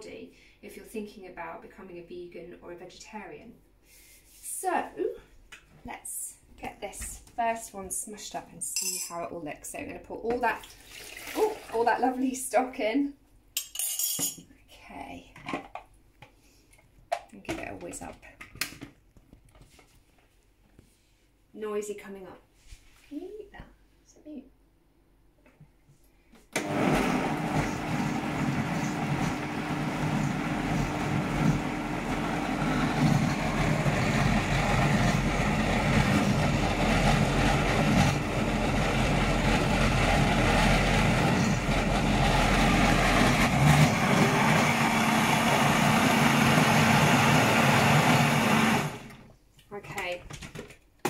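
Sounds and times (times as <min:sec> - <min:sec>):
blender running: 0:26.6 - 0:49.2.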